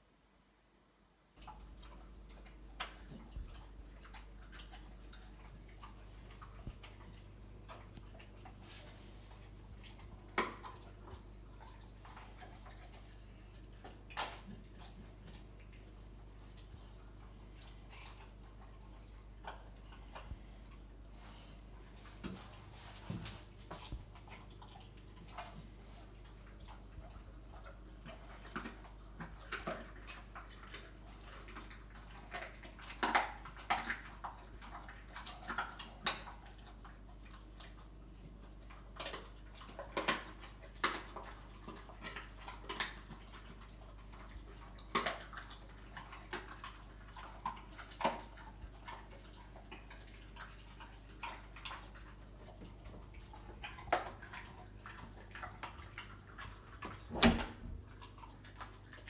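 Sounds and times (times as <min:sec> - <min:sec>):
dog chewing bones: 0:01.4 - 0:21.0, 0:22.0 - 0:59.0.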